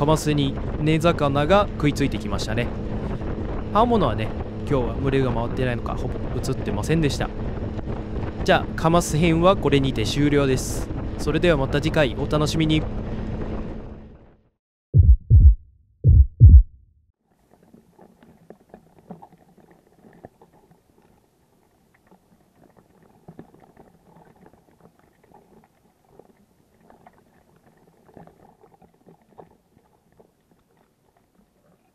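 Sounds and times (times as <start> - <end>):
deep booming heartbeat thumps: 15.0 - 17.0
faint crackling and clicking: 17.3 - 31.9.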